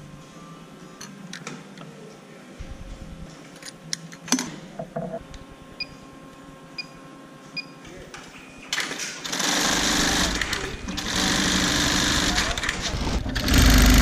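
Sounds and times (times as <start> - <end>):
sewing machine running: 9.2 - 14.0.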